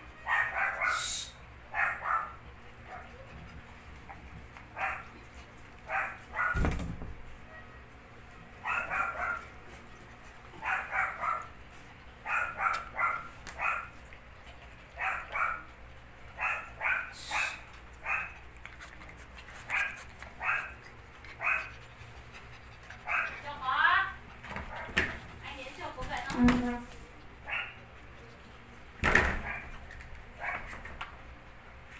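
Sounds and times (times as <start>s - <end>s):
puppy barking in high yaps: 0.2s - 1.1s, 1.7s - 3.2s, 4.8s - 5.1s, 5.9s - 6.7s, 8.6s - 9.5s, 10.6s - 11.5s, 12.2s - 14.0s, 15.0s - 15.7s, 16.4s - 18.4s, 19.7s - 20.8s, 21.4s - 21.7s, 23.0s - 23.3s, 27.4s - 27.8s, 30.4s - 30.7s.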